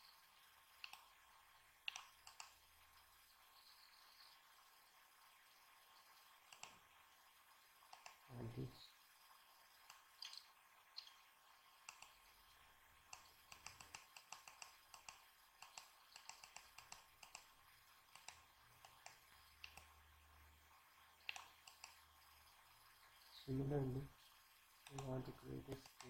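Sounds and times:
computer mouse clicks: 0.8 - 1.1, 1.8 - 2.6, 6.4 - 6.8, 7.9 - 8.2, 9.8 - 11.2, 11.8 - 12.2, 13.1 - 17.5, 18.1 - 19.9, 21.2 - 22.0, 24.8 - 26.0.

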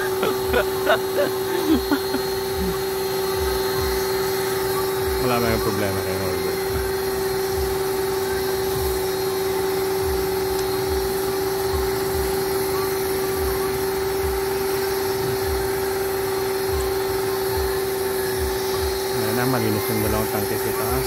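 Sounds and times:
low throb: 0.0 - 9.2
machine motor humming: 0.0 - 21.0.

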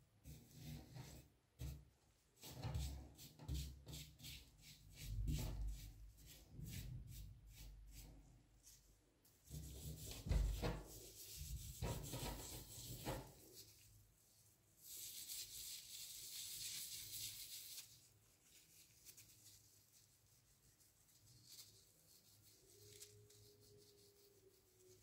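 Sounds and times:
handling knocks and rubs: 8.6 - 13.9.

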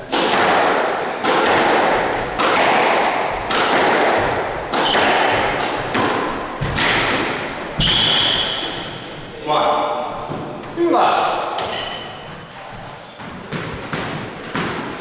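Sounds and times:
squash ball hitting racket and wall: 0.0 - 9.2, 10.2 - 15.0.

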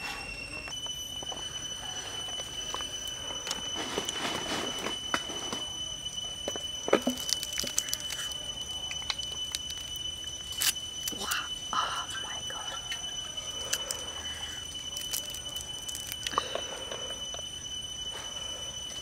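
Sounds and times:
high-pitched insect drone: 0.0 - 19.0
crisp food crackling: 6.9 - 11.5, 13.6 - 16.7.

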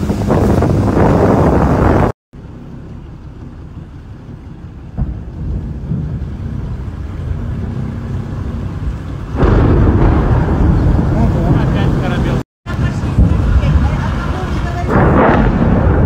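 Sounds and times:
wind buffeting microphone: 0.0 - 2.1.

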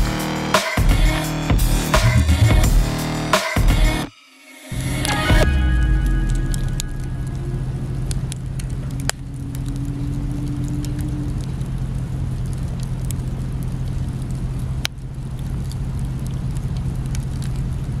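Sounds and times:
campfire crackling: 4.7 - 18.0.

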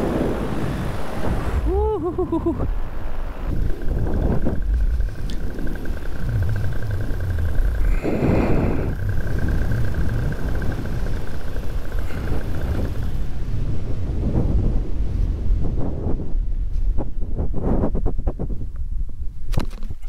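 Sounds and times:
paramotor engine and propeller: 0.0 - 15.5
wind rushing over microphone: 0.0 - 20.0.

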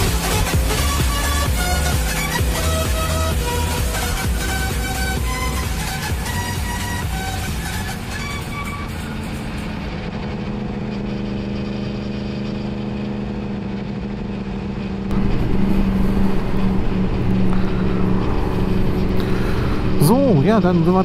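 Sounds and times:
electronic background music: 0.0 - 11.8
motorcycle engine running: 0.0 - 21.0.

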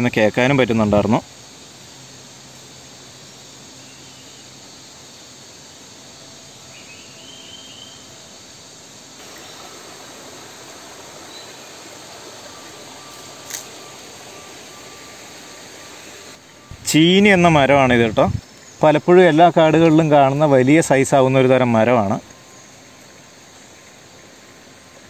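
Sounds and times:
insects hissing: 0.0 - 25.0
warbling bird call: 9.2 - 16.8.

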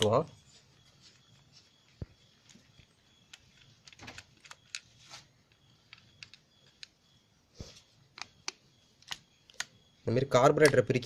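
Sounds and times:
screwdriver metal clicks: 10.6 - 10.9.

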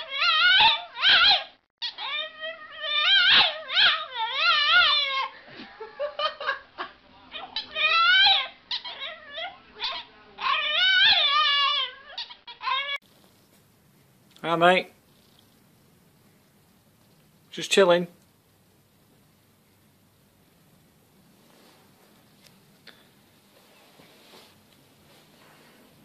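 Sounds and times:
dog yowling: 0.0 - 5.4, 7.3 - 13.0.

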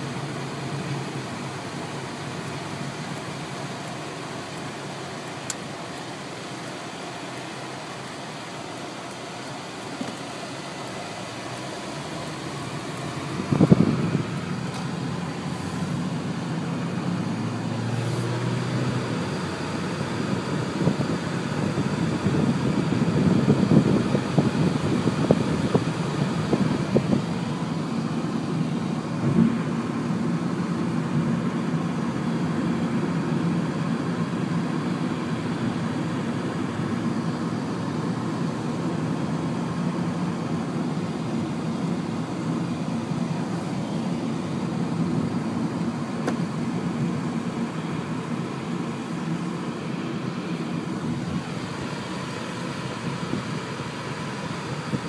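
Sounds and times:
car engine and road noise: 0.0 - 55.0
wind buffeting microphone: 13.4 - 14.3.

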